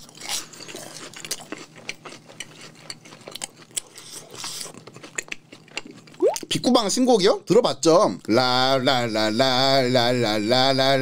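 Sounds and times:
person chewing crunchy food: 0.0 - 6.5
mouth clicks: 6.2 - 6.5.

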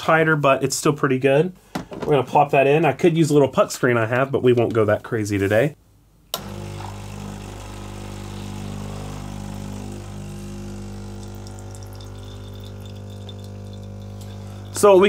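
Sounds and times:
espresso machine pump humming: 6.4 - 15.0.

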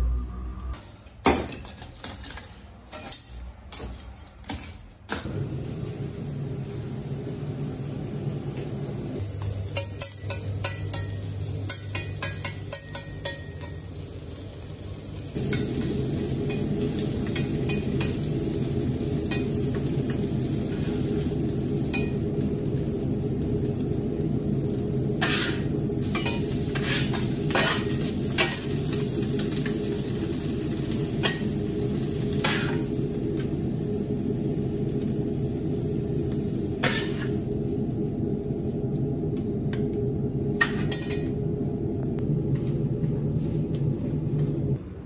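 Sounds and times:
meat sizzling on griddle: 5.3 - 38.8
metal scraping griddle plate: 25.2 - 28.7, 32.4 - 32.9, 36.8 - 37.4
low rumble: 33.0 - 45.0.

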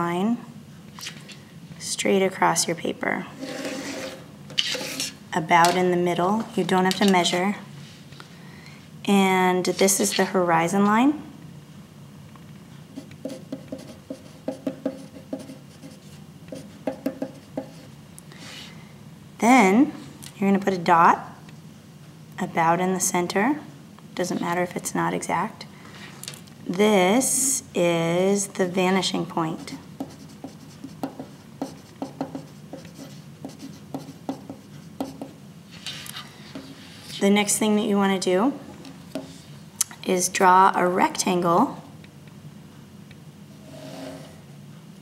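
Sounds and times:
pencil writing on paper: 13.0 - 17.9, 29.6 - 35.4.

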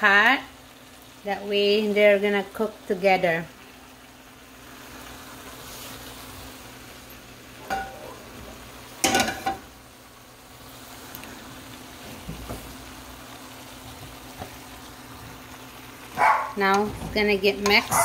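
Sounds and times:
food frying in a pan: 0.0 - 18.0
utensil clanking on metal pan: 7.6 - 8.0, 9.0 - 9.7, 16.6 - 18.0.

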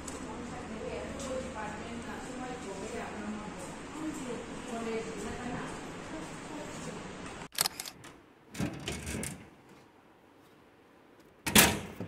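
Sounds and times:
room noise: 0.0 - 12.0.

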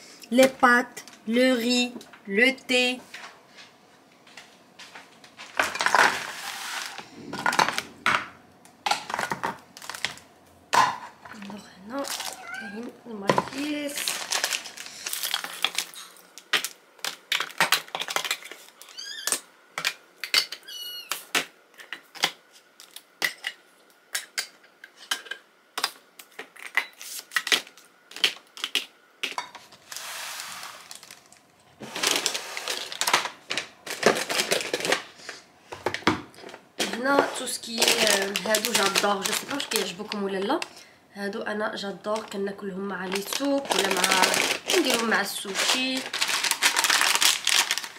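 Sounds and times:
plastic packaging crinkling: 5.4 - 8.2, 8.9 - 10.3, 11.4 - 12.8, 13.4 - 19.4, 29.8 - 35.4, 36.4 - 40.7, 42.1 - 42.4, 43.0 - 47.9
plastic packets rustling: 5.4 - 8.2, 8.9 - 10.3, 11.4 - 20.0, 29.7 - 40.8, 42.0 - 47.9.

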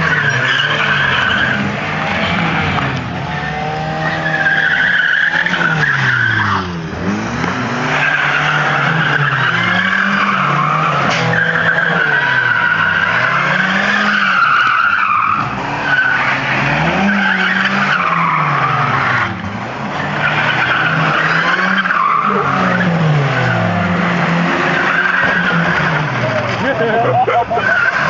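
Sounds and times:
car engines revving: 0.0 - 28.0
tyres squealing on asphalt: 0.0 - 28.0.

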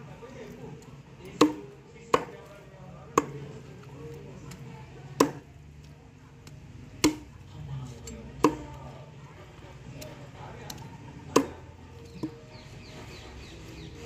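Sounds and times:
cleaver chopping into wood: 1.3 - 2.5, 3.1 - 3.5, 4.5 - 5.5, 6.5 - 7.4, 8.4 - 8.7, 10.6 - 12.4.

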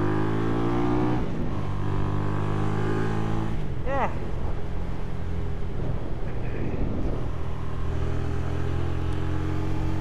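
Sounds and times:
road noise: 0.0 - 10.0
wind noise: 3.0 - 10.0.

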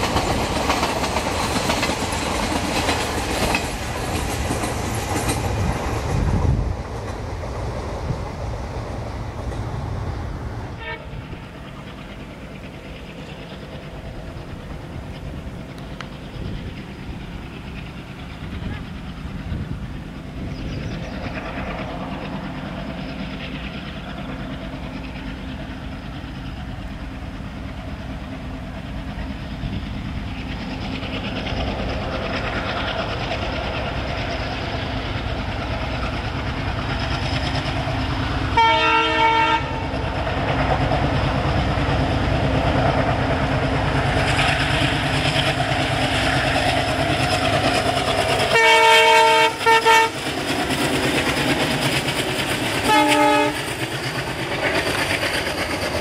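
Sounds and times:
diesel locomotive engine: 0.0 - 56.0
train running noise: 0.0 - 56.0
multi-tone train horn: 10.7 - 11.4, 38.5 - 40.0, 48.5 - 50.2, 52.8 - 53.7.

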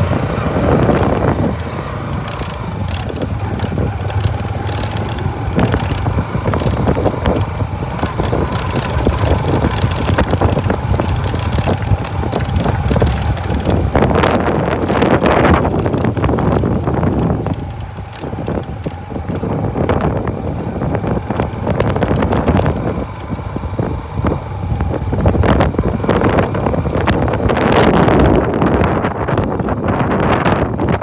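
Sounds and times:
knocks and rattles from bumps: 0.0 - 23.4
motorcycle engine running: 0.0 - 31.0
wind buffeting microphone: 0.0 - 31.0.

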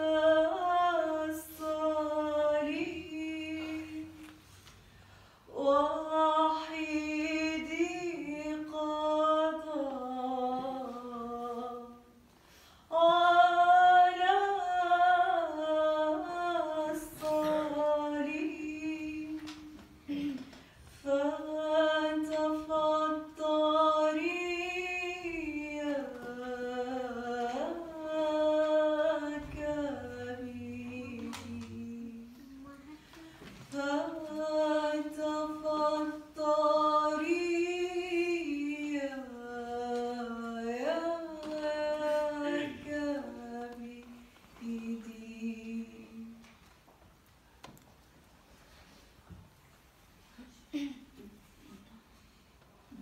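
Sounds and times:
person singing unaccompanied: 21.0 - 46.5.

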